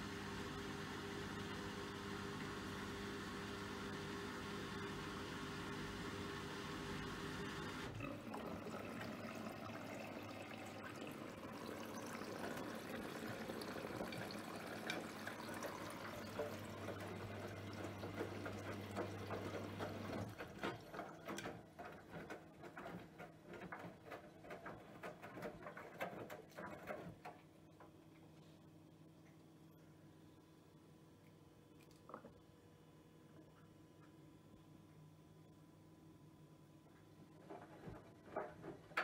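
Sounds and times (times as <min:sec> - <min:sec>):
washing machine humming: 0:00.0 - 0:30.8
water sloshing in washing machine: 0:06.7 - 0:27.6.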